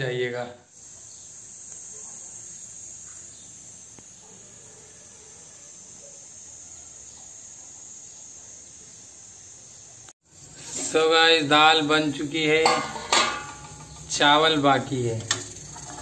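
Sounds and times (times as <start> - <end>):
crickets chirring: 0.0 - 16.0
gas stove burner rushing: 12.7 - 16.0.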